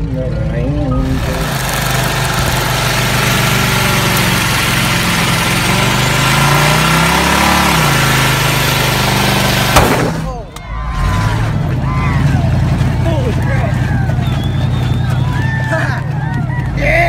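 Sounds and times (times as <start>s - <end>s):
engine revving high: 0.0s - 17.0s
tyre spinning on pavement: 1.0s - 10.3s.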